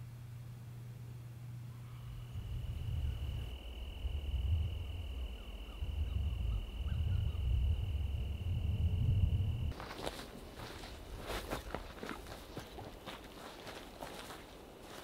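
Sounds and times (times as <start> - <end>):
cricket trilling: 1.8 - 15.0
wind rumble on microphone: 2.1 - 9.8.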